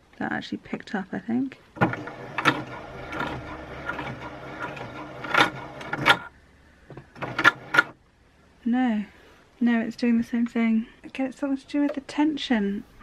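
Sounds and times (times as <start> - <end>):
sewing machine stitching: 1.8 - 6.3, 7.1 - 8.0.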